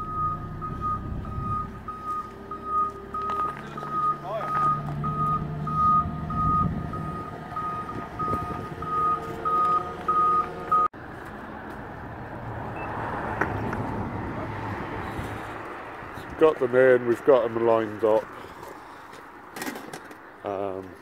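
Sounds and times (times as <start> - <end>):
reversing alarm beeping: 0.0 - 10.9.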